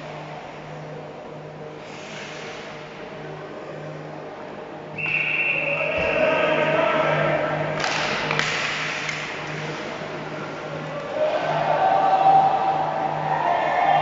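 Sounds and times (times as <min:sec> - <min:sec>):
voices shouting: 0:10.8 - 0:14.0.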